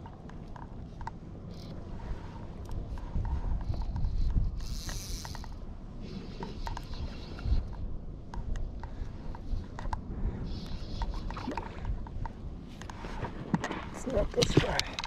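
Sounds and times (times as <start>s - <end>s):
fishing reel ratchet clicking: 3.6s - 5.6s.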